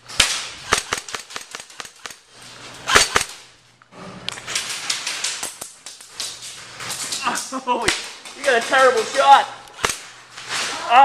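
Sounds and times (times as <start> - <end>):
air guns firing sharp cracks: 0.1 - 3.5, 7.8 - 9.0, 9.7 - 10.2.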